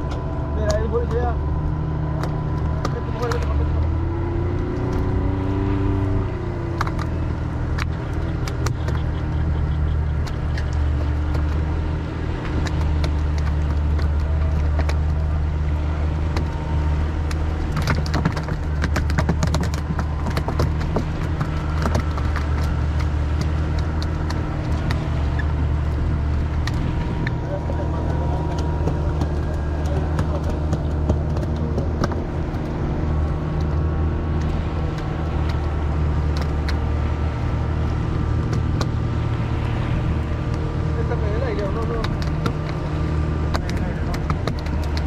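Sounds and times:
boat motor droning: 0.0s - 45.0s
knocks and clatter: 17.2s - 40.7s.

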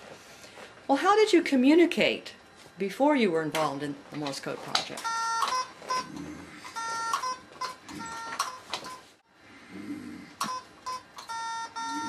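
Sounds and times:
electronic beeps: 6.7s - 9.0s, 10.4s - 12.0s.

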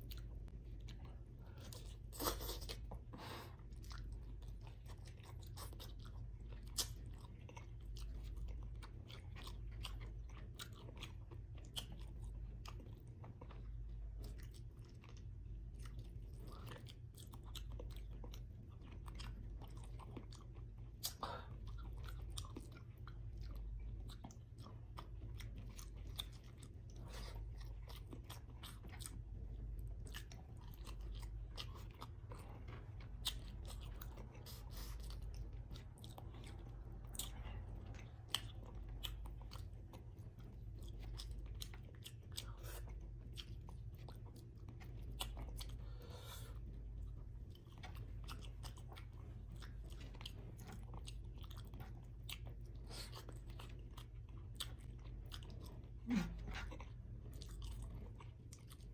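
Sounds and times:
person chewing with wet mouth sounds: 0.0s - 58.9s
steady low hum: 0.0s - 58.9s.

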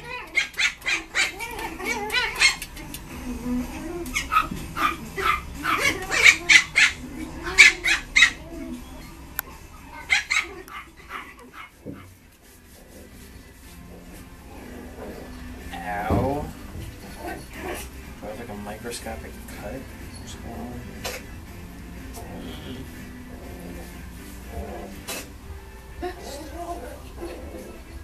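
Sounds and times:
puppies yapping and barking: 0.0s - 3.0s, 3.9s - 12.2s, 14.8s - 18.2s.

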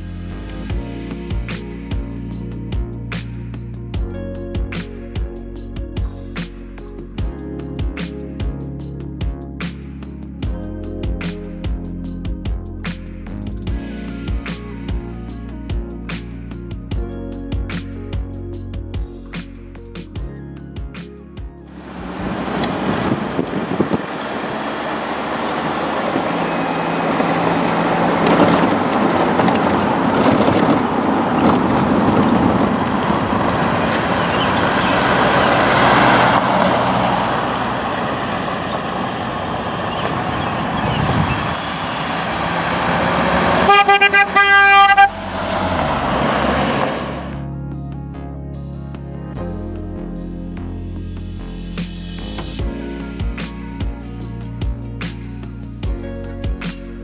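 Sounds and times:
car driving past: 21.7s - 47.4s
car horn honk: 43.2s - 45.8s.

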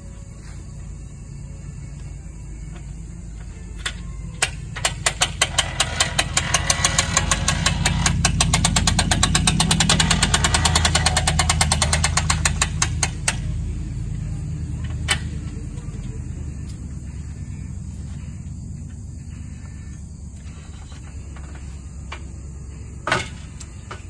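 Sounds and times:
low steady hum: 0.0s - 24.0s
crank ratcheting clicks: 3.8s - 13.5s.

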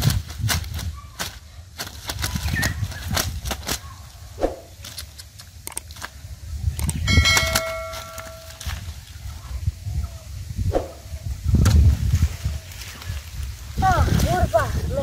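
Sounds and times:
plants rustling and snapping: 0.0s - 9.4s, 11.6s - 15.0s
metallic ring: 7.0s - 8.8s.

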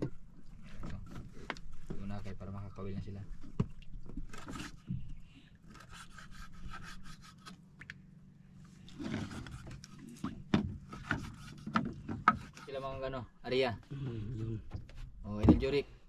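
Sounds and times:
fishing gear scraping wooden hull: 3.2s - 7.6s, 8.7s - 13.2s.

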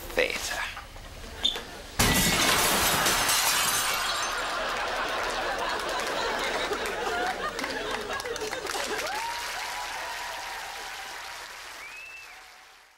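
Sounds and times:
glass breaking: 2.0s - 4.5s
audience laughing: 4.0s - 9.3s
audience applauding: 4.3s - 12.9s.

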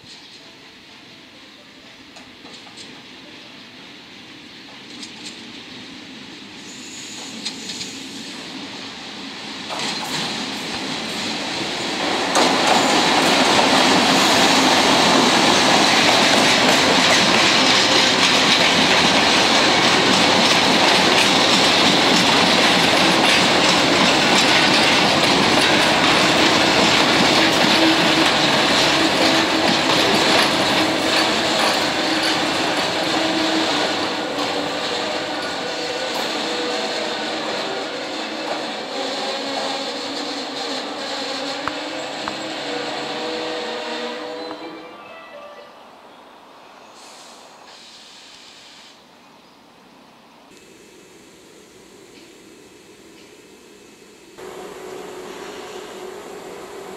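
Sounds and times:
electric locomotive passing: 0.2s - 49.1s, 50.4s - 56.9s
wheel-on-rail noise: 6.7s - 44.7s, 50.5s - 56.9s.

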